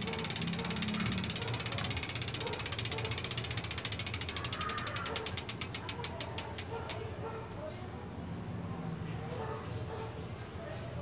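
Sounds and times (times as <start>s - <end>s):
bike freewheel ratcheting clicks: 0.0s - 7.4s.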